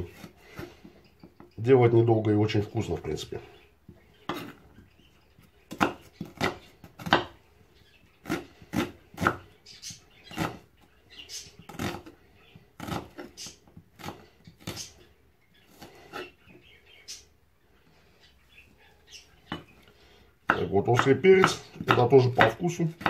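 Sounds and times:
knife chopping on wooden board: 4.3 - 4.6, 5.7 - 7.4, 8.2 - 9.4, 10.3 - 10.6, 12.8 - 13.3, 20.4 - 23.0.

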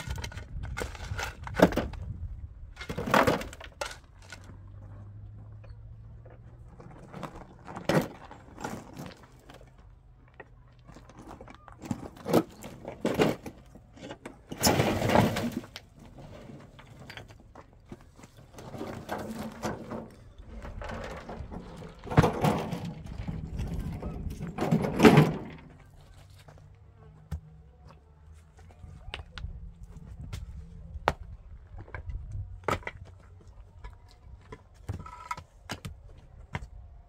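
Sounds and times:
metal wheelbarrow rattling: 11.0 - 26.0.

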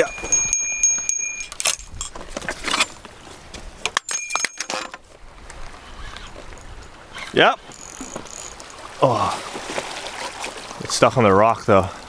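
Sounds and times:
small bell jingling: 0.0 - 2.0, 4.1 - 4.7.

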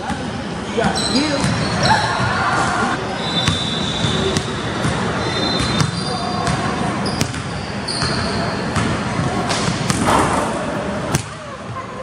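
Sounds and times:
sneakers squeaking: 0.8 - 11.8
basketball bouncing on hardwood floor: 8.8 - 10.5.

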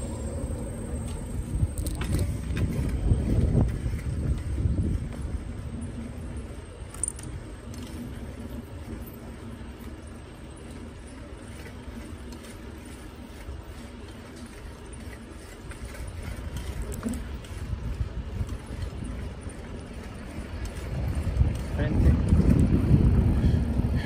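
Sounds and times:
wind buffeting microphone: 0.0 - 9.0, 15.4 - 24.0
bicycle ride rumble: 0.0 - 24.0.

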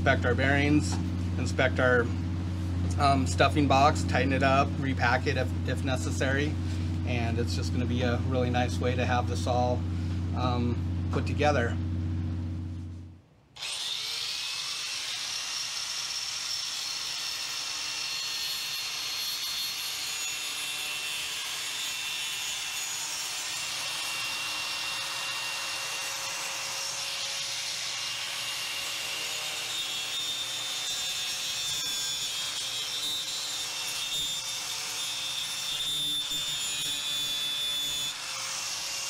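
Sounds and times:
angle grinder grinding fiberglass: 13.6 - 39.0.

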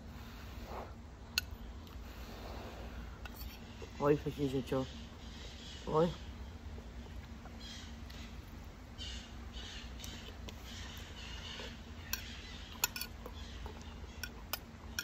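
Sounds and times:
faint chewing: 10.0 - 15.0.

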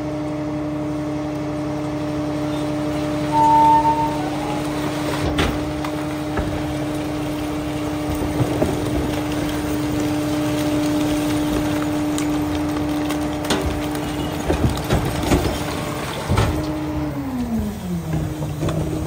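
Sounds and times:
garbage truck engine running: 0.0 - 19.0
hydraulic pump whine: 2.5 - 6.8.

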